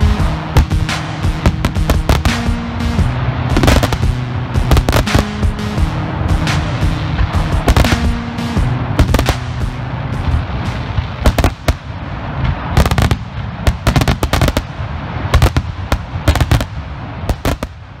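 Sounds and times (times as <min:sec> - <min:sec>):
firework crackle: 0:00.0 - 0:05.6, 0:06.4 - 0:08.3, 0:09.0 - 0:18.0
firework bangs: 0:00.0 - 0:05.8, 0:06.4 - 0:18.0
low rumble: 0:00.0 - 0:18.0.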